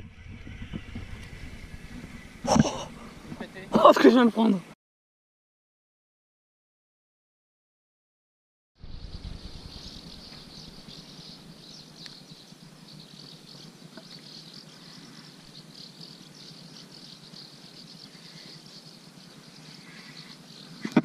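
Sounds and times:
low rumble: 0.0s - 3.8s, 8.8s - 11.9s
insects chirping: 0.1s - 4.6s, 8.8s - 21.0s.

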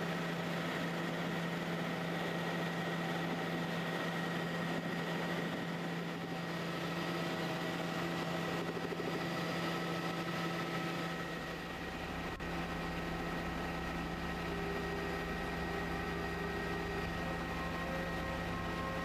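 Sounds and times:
helicopter engine and rotor noise: 0.0s - 19.0s
high whining tones: 11.2s - 19.0s.

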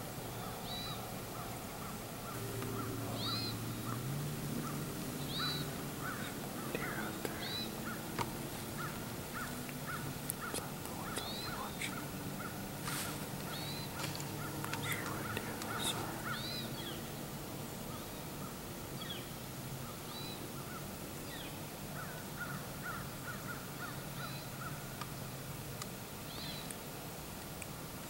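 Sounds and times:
steady low hum: 0.0s - 26.2s
birds chirping and calling: 0.3s - 24.8s.

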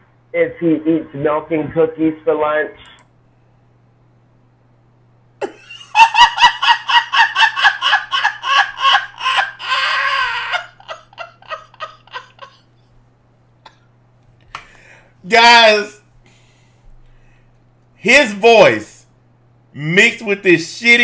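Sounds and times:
man laughing hard: 5.4s - 12.7s.

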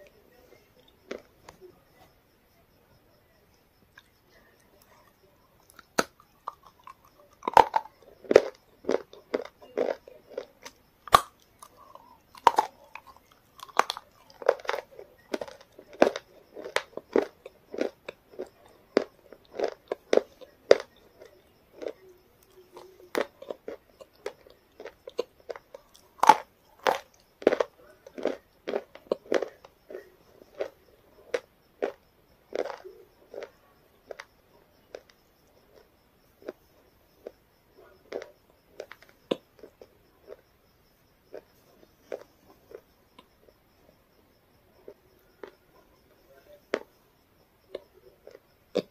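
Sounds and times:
person crunching brittle food: 1.0s - 1.6s, 5.6s - 37.4s, 38.0s - 40.4s, 41.3s - 42.8s.

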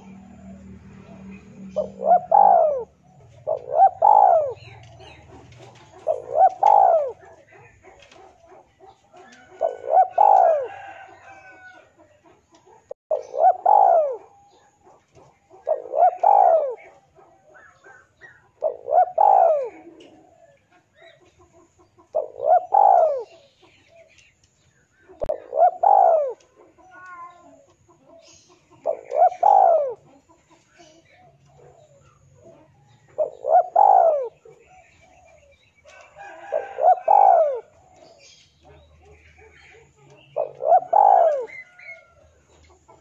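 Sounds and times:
dove cooing: 0.0s - 43.0s.

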